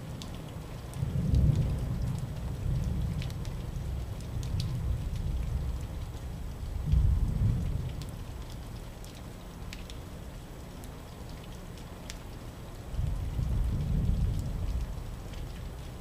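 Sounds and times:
steady rain falling: 0.0s - 16.0s
low rumble of thunder: 0.9s - 8.7s, 12.9s - 16.0s.

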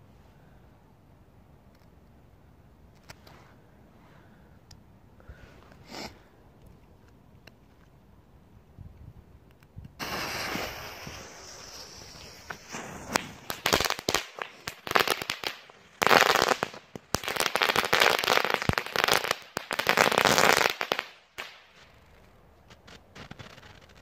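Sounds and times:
lit fuse hissing: 10.0s - 13.8s
fireworks popping and crackling: 10.0s - 24.0s.

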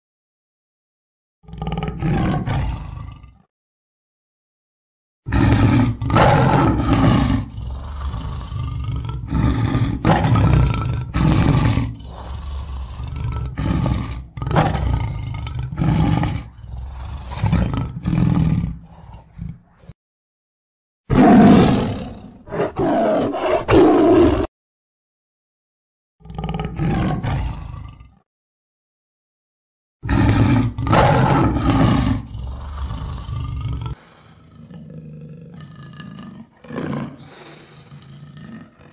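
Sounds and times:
lion roaring and grunting: 1.4s - 3.5s, 5.3s - 20.0s, 21.1s - 24.5s, 26.2s - 28.2s, 30.0s - 38.9s.

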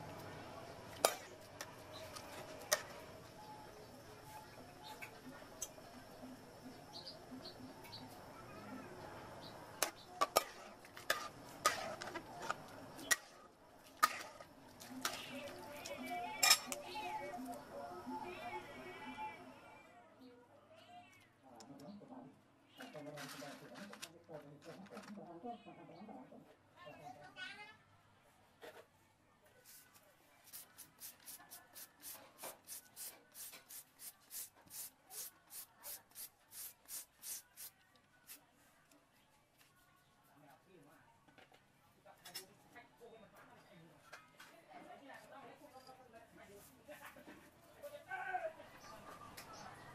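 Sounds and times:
metal spatula scraping a pot: 10.2s - 13.4s, 14.0s - 15.3s.

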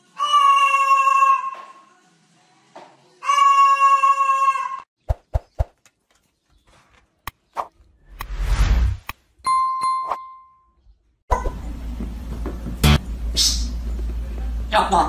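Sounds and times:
cockatoo calling: 0.0s - 1.8s, 3.2s - 4.9s.

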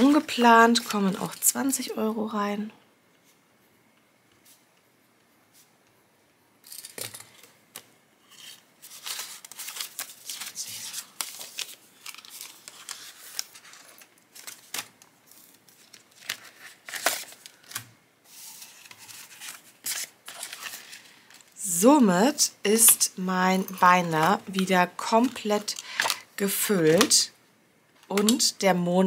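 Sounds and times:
plastic envelopes and paper rustling: 0.0s - 1.9s, 6.8s - 21.7s, 23.8s - 27.4s.

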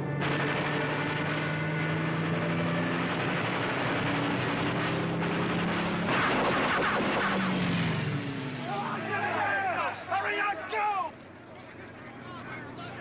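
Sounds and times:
propeller aircraft engines droning: 7.5s - 13.0s.

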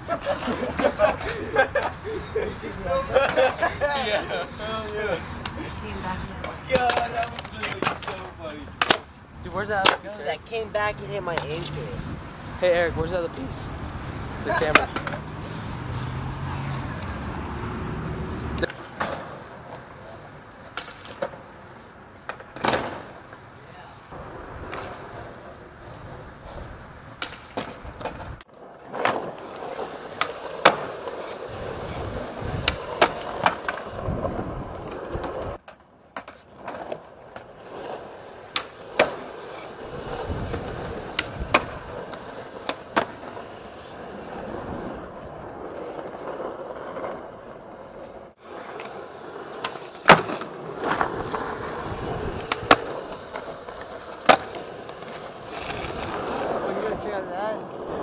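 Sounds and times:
skateboard wheels rolling on concrete: 0.0s - 58.0s
skateboard tail pops and landings: 8.8s - 9.1s, 20.6s - 21.4s, 22.2s - 23.2s, 27.1s - 31.2s, 32.2s - 37.4s, 38.5s - 39.3s, 40.0s - 43.4s, 48.7s - 51.7s, 52.3s - 55.1s.

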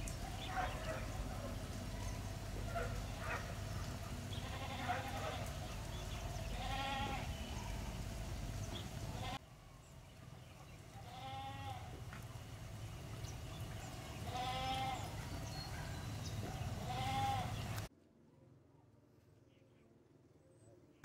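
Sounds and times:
animal calling: 0.0s - 8.0s, 13.6s - 17.8s
low steady background noise: 0.0s - 21.0s.

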